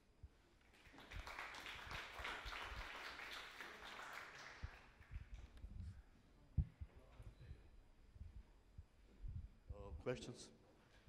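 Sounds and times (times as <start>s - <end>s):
audience clapping: 0.6s - 5.6s.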